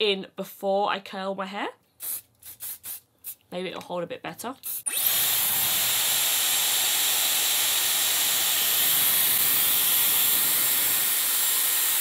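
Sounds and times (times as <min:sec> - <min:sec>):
hair styler blowing air: 0:04.6 - 0:12.0.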